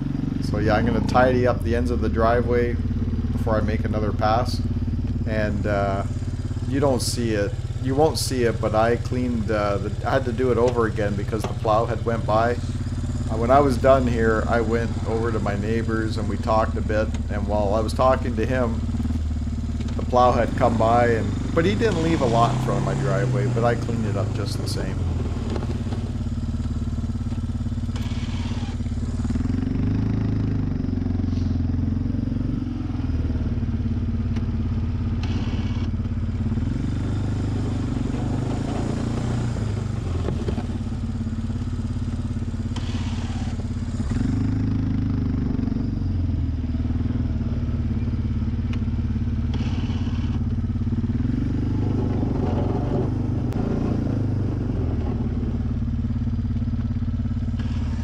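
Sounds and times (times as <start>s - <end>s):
atv engine revving: 0.0s - 58.0s
plow blade hissing sweeps: 20.1s - 25.0s, 27.9s - 29.5s, 42.7s - 44.7s, 49.5s - 50.4s.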